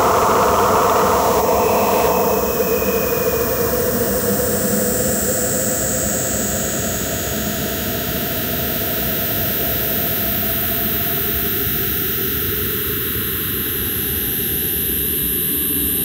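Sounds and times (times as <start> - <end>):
droning tone: 0.0 - 7.7.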